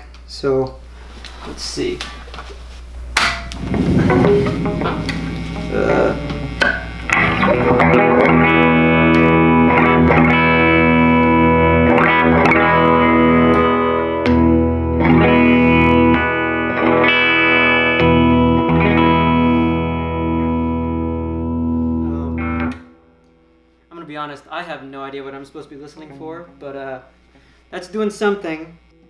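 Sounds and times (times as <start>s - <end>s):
overdriven electric guitar chords: 3.4s - 23.7s.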